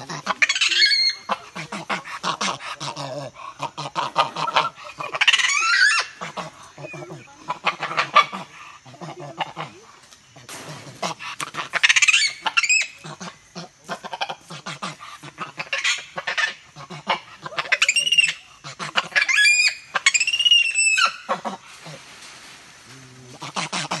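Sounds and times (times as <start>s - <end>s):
monkey squealing calls: 0.0s - 1.6s, 4.4s - 8.3s, 15.4s - 22.0s
clicks and rustling: 21.7s - 24.0s.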